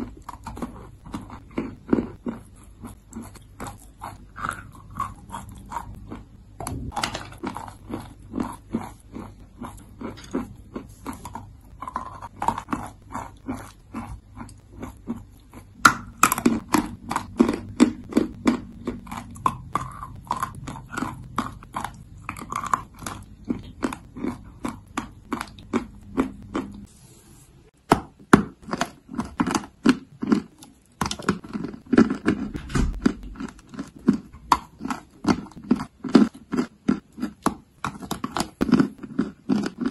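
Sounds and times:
chalk crunching in mouth: 0:07.4 - 0:26.8.

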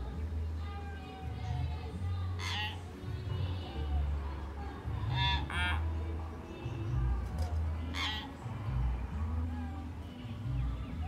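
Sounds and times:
myna bird calling: 0:02.3 - 0:03.0, 0:05.0 - 0:06.0, 0:07.8 - 0:08.6.

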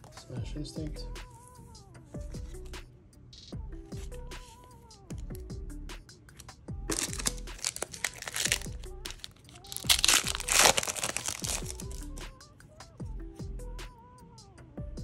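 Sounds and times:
background music: 0:00.0 - 0:15.0
foil wrapper crinkling and tearing: 0:06.9 - 0:12.2.

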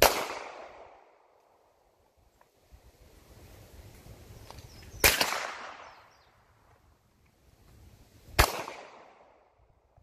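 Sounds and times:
gunshots echoing: 0:00.0 - 0:01.1, 0:05.0 - 0:06.0, 0:08.4 - 0:09.4.

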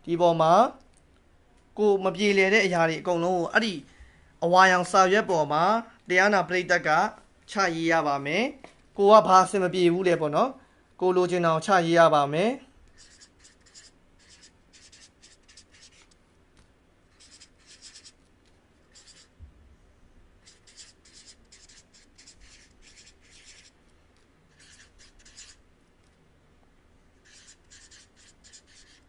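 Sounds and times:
marker scratching on paper: 0:12.9 - 0:16.2, 0:17.1 - 0:19.4, 0:20.4 - 0:23.8, 0:24.5 - 0:25.6, 0:27.2 - 0:29.0.

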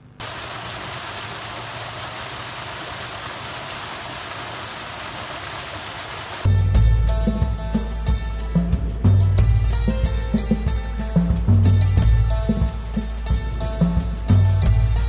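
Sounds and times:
water gushing and splashing: 0:00.2 - 0:06.5
music: 0:06.5 - 0:15.0.

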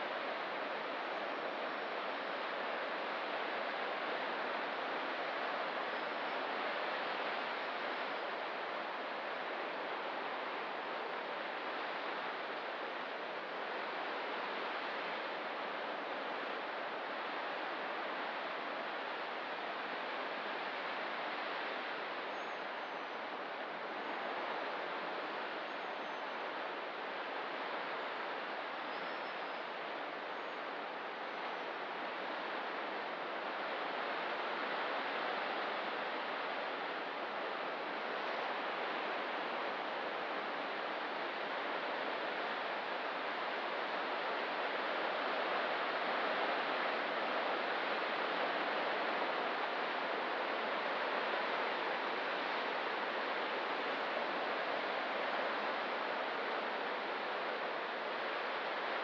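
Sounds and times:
faint high bird chirps: 0:28.9 - 0:29.6.

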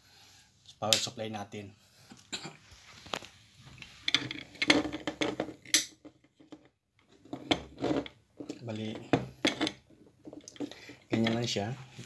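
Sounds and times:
hard objects clattering on table: 0:04.0 - 0:11.5.

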